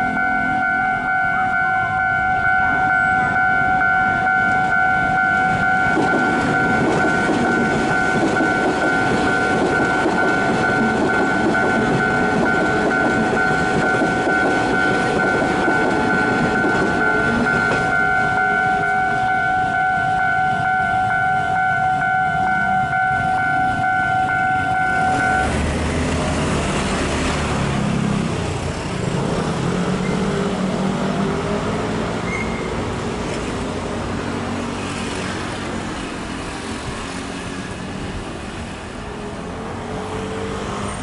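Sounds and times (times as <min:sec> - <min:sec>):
level-crossing warning bell: 0:00.0 - 0:25.6
train rumble and wheel clatter: 0:00.0 - 0:41.0.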